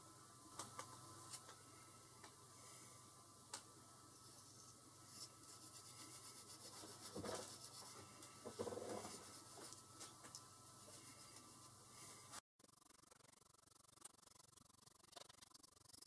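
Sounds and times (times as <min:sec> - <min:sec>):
scratching and rubbing of metal pins: 0:05.1 - 0:09.8.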